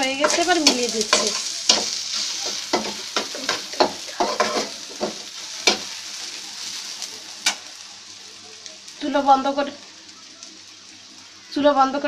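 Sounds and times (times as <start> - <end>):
seeds sizzling in oil: 0.0 - 12.0
spoon clicking and scraping pan: 0.1 - 5.9.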